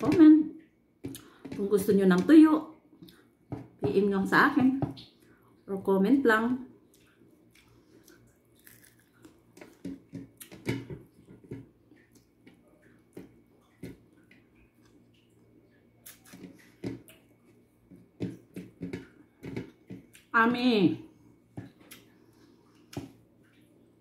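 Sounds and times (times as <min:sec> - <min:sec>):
person chewing food: 0:06.8 - 0:20.3, 0:21.6 - 0:23.8
small crunches: 0:07.0 - 0:09.8.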